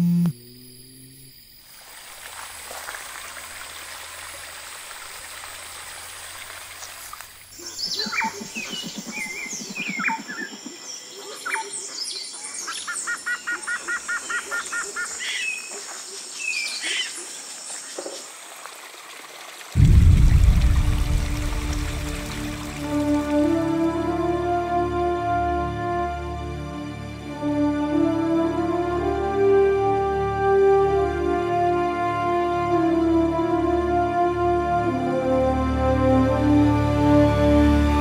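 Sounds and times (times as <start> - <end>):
high insect drone: 0.0 - 2.8
birds chirping and calling: 7.6 - 15.9
fast repeated bird trill: 7.8 - 10.7.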